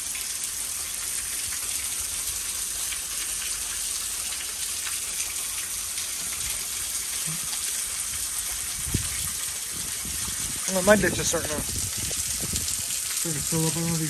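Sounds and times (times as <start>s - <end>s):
heavy rain falling: 5.7s - 14.0s.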